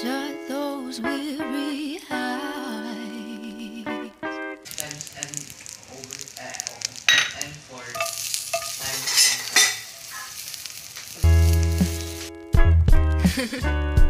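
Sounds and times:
fat sizzling in a frying pan: 3.3 - 13.6.

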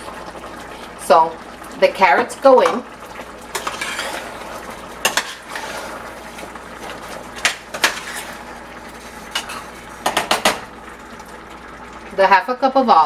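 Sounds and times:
metal spoon scraping pot: 3.5 - 4.3, 5.0 - 6.0, 7.4 - 8.4.

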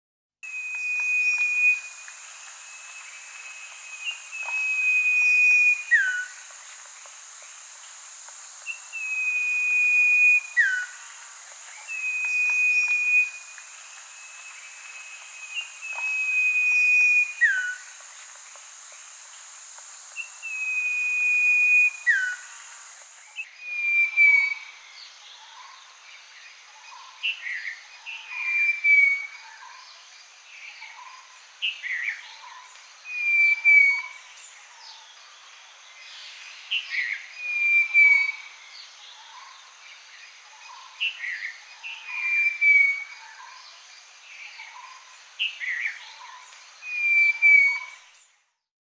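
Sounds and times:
bird whistling call: 0.4 - 2.1, 2.7 - 6.4, 8.7 - 11.0, 11.8 - 17.9, 20.2 - 22.5, 23.4 - 24.8, 28.1 - 29.4, 33.1 - 34.2, 36.7 - 38.6, 41.0 - 43.2, 46.8 - 48.0
steady high-pitched hiss: 0.4 - 48.7.

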